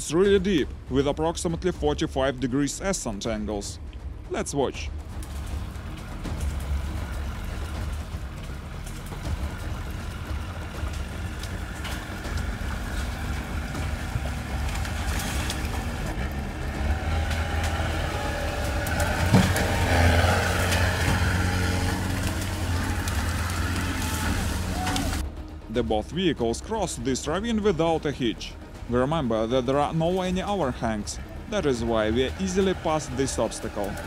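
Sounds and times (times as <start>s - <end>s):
vehicle engine running: 4.9s - 25.5s, 28.5s - 34.0s.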